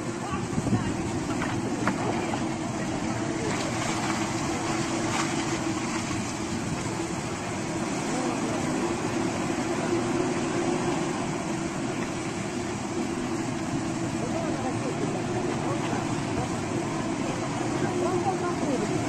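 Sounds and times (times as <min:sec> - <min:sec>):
excavator diesel engine running: 0:00.0 - 0:19.0
steady rushing noise: 0:00.0 - 0:19.0.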